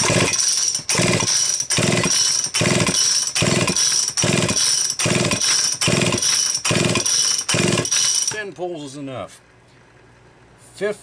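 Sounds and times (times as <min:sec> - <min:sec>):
chainsaw recoil starter pulls: 0:00.0 - 0:08.6.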